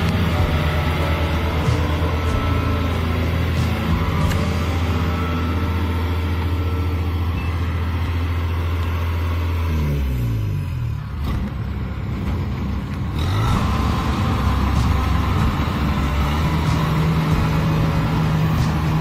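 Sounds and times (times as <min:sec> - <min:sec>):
combine harvester diesel engine revving: 0:00.0 - 0:19.0.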